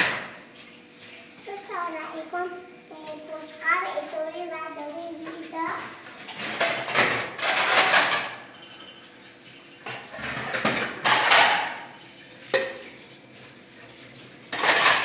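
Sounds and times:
dishes clattering: 0:00.0 - 0:00.4, 0:06.3 - 0:09.1, 0:09.8 - 0:13.0, 0:14.5 - 0:15.0.

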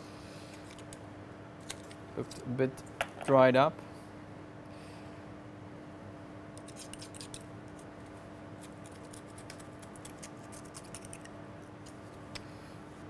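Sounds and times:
knife scraping oyster shell: 0:06.6 - 0:07.9, 0:08.6 - 0:12.0.

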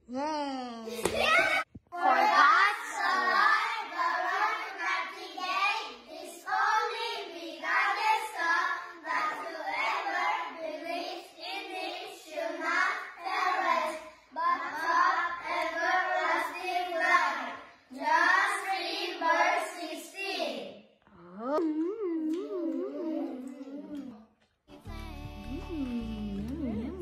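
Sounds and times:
children singing: 0:02.0 - 0:20.6.

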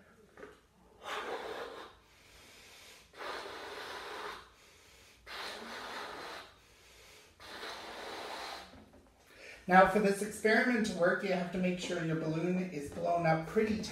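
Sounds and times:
breath intakes: 0:00.9 - 0:09.7
man blowing into balloon: 0:01.0 - 0:09.0.

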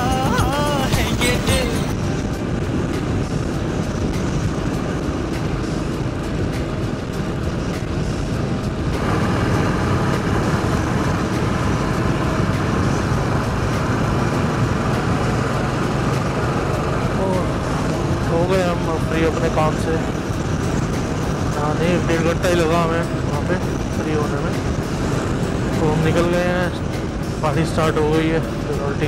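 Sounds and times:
motorcycle engine running: 0:00.0 - 0:29.0
road and wind noise: 0:00.0 - 0:29.0.

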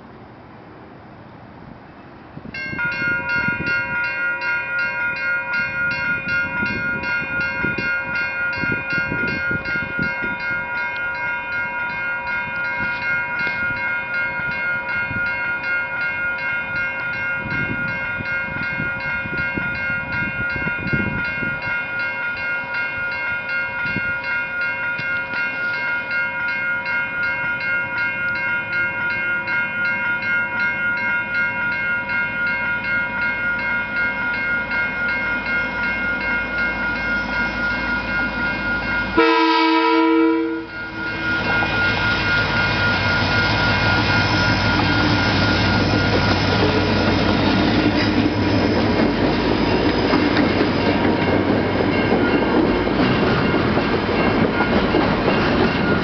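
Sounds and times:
level crossing warning bell: 0:02.6 - 0:56.0.

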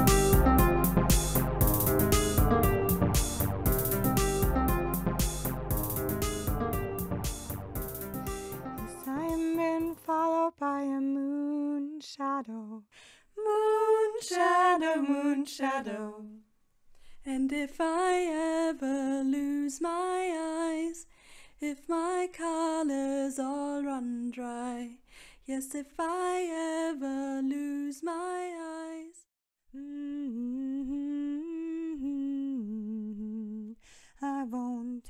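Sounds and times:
plucked guitar notes: 0:00.0 - 0:09.5
woman singing unaccompanied: 0:08.9 - 0:16.4, 0:17.2 - 0:21.0, 0:21.6 - 0:29.2, 0:29.8 - 0:35.0.

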